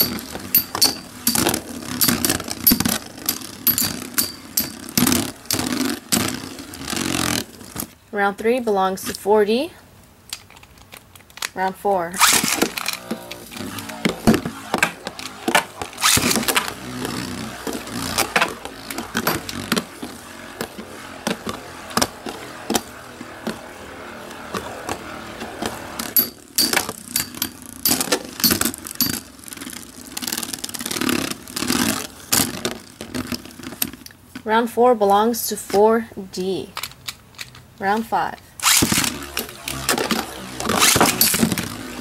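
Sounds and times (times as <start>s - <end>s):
spinning tops clacking: 0.0s - 7.4s, 12.2s - 32.5s, 38.6s - 42.0s
spinning tops whirring: 0.0s - 8.0s, 12.1s - 34.0s, 38.6s - 42.0s.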